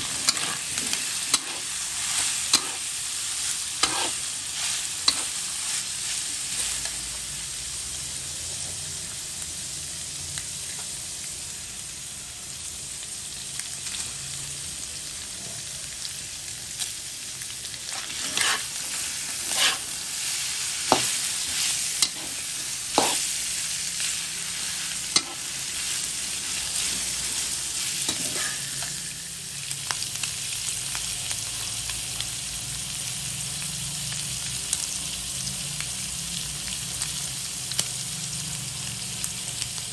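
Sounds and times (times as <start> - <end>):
metal spatula scraping a wok: 0.0 - 2.9, 3.8 - 5.8, 17.9 - 23.3, 25.1 - 25.5, 26.8 - 29.2
beef sizzling in hot oil: 0.0 - 39.9.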